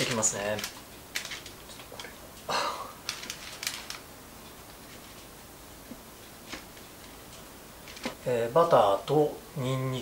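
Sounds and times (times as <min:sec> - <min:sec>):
parchment paper rustling: 0:00.0 - 0:02.1, 0:03.0 - 0:04.1, 0:07.8 - 0:08.2.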